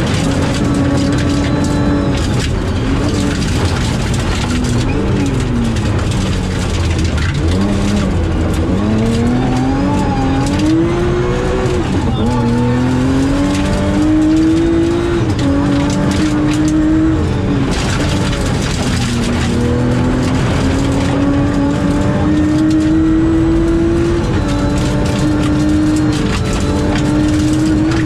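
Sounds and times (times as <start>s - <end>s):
tyres on gravel: 0.0s - 16.9s
rally car engine revving: 0.0s - 28.0s.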